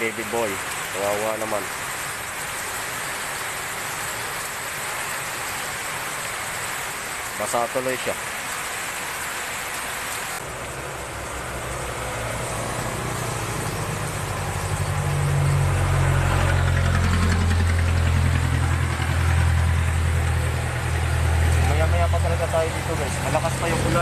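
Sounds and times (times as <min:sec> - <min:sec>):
heavy rain: 0:00.0 - 0:24.0
vehicle engine idling: 0:10.4 - 0:24.0.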